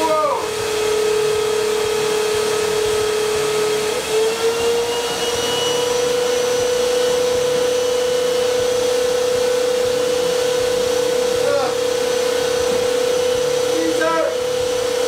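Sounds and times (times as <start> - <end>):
vacuum cleaners running: 0.0 - 15.0.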